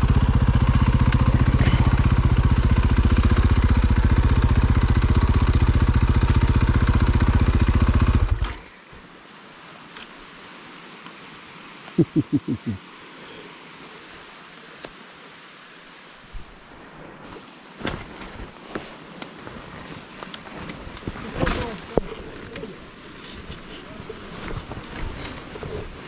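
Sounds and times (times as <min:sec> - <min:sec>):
motorcycle engine running: 0:00.0 - 0:08.6
faint hiss: 0:08.5 - 0:26.0.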